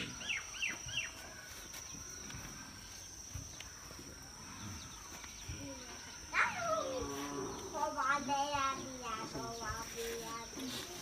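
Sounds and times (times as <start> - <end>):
bird chirps: 0.0 - 7.7
high insect drone: 0.0 - 11.0
faint rustles: 1.0 - 11.0.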